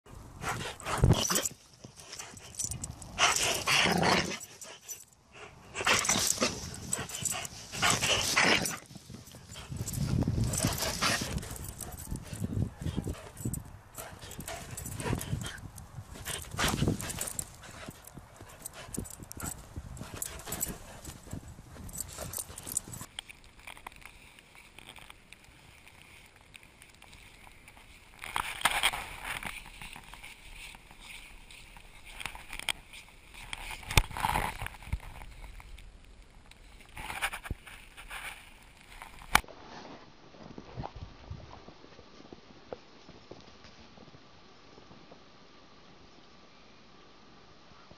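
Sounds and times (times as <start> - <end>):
dogs playing: 0.3 - 23.1.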